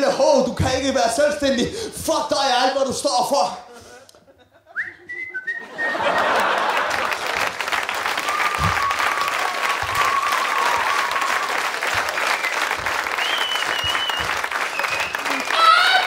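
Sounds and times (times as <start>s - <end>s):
whistling: 4.7s - 6.0s, 8.2s - 9.4s, 10.0s - 15.6s
audience applauding: 5.9s - 16.0s.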